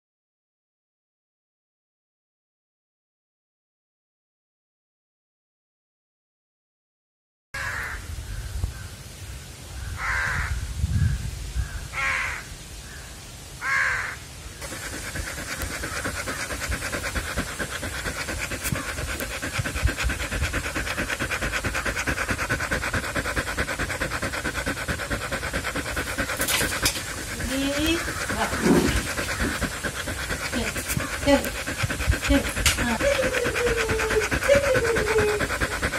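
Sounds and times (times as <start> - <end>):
crow cawing: 7.6 - 8.0, 10.0 - 10.5, 12.0 - 12.5, 13.6 - 14.2
dog panting rapidly: 14.6 - 35.9.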